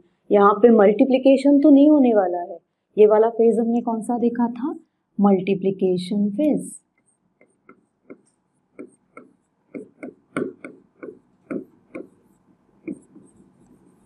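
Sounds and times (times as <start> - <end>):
pen tip tapping on screen: 7.4 - 13.4.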